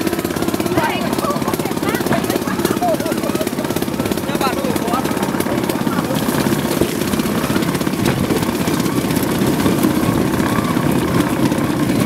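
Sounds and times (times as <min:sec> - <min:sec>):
small engine chattering: 0:00.0 - 0:12.0
wheels knocking on track: 0:00.0 - 0:12.0.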